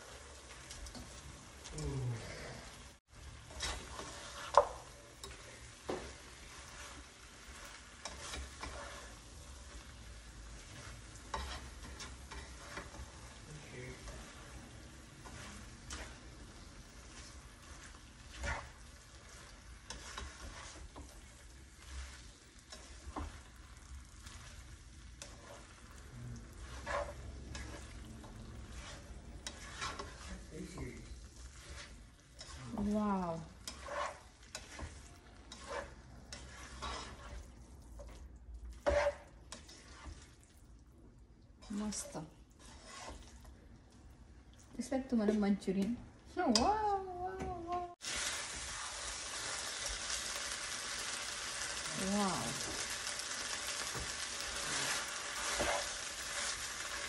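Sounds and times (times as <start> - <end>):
low sizzle: 0.0 - 57.0
spatula scraping and knocking pan: 3.4 - 25.8, 26.6 - 38.2, 38.8 - 40.3, 41.6 - 43.6, 52.6 - 57.0.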